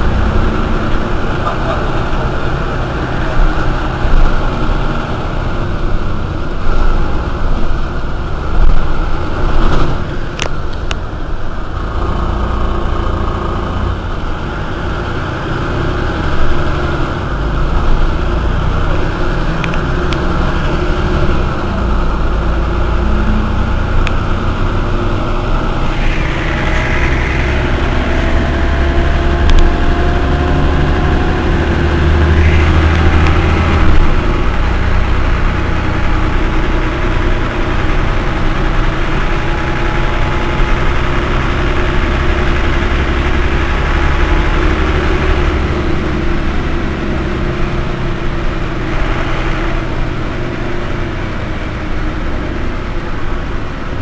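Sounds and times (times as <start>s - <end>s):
bus diesel engine rumbling: 0.0s - 54.0s
faint rising whine: 25.3s - 35.5s.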